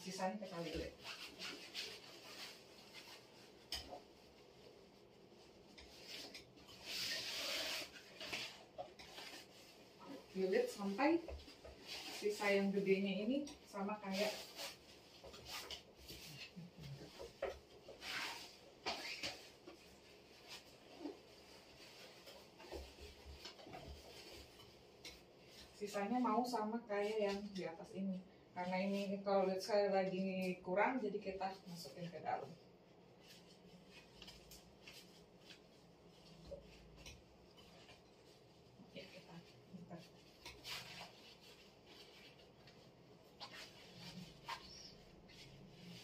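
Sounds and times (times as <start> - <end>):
cloth rustling: 0.1 - 26.4, 31.4 - 46.0
cloth belt rustling: 33.0 - 46.0.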